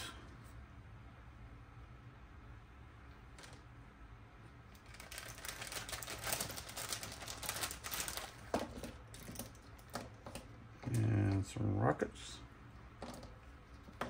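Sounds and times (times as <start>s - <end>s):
packaging crinkling: 4.7s - 10.5s.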